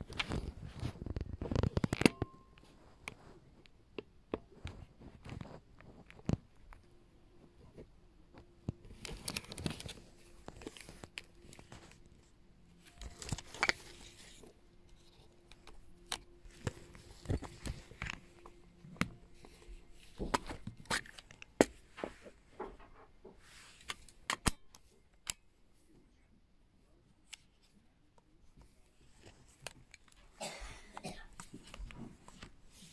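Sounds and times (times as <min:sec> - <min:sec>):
camera handling clicks and rustles: 0:00.0 - 0:02.3, 0:08.6 - 0:12.1, 0:12.8 - 0:21.8, 0:23.8 - 0:25.4.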